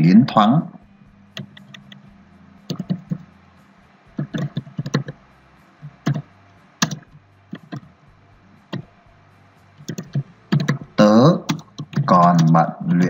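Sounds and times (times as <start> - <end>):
keyboard key clicks: 1.4 - 2.0, 2.7 - 3.2, 4.2 - 5.2, 5.9 - 7.9, 9.8 - 10.9, 11.5 - 12.6.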